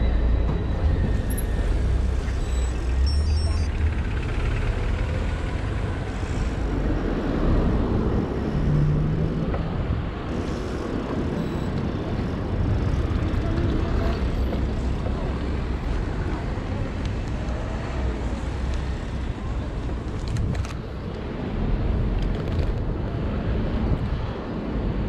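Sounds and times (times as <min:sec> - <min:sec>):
street traffic: 0:00.0 - 0:25.0
wind rumbling on microphone: 0:05.4 - 0:25.0.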